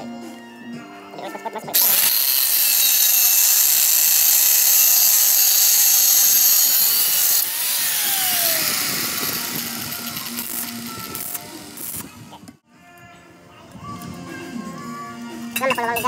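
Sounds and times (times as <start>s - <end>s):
angle grinder grinding steel: 1.6s - 12.2s.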